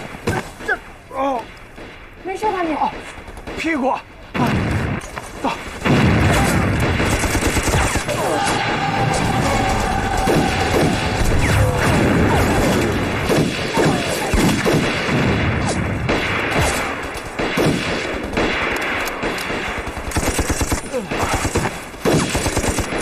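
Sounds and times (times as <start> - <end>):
rifle shots: 1.4 - 23.0
machine-gun fire: 5.8 - 23.0.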